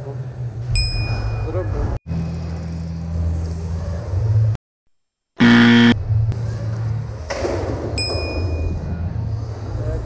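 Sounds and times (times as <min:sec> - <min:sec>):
short loud buzzer: 0:05.4 - 0:06.0.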